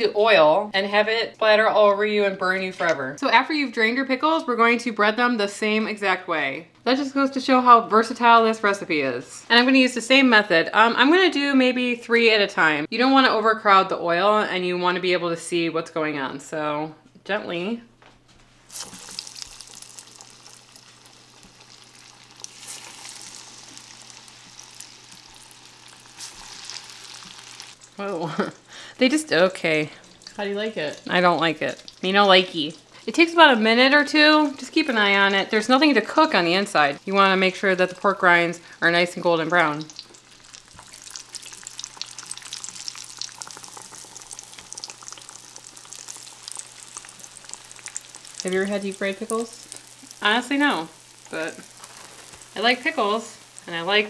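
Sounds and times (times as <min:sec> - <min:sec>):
deep-frying sizzle with crackles: 0:18.6 - 0:54.0.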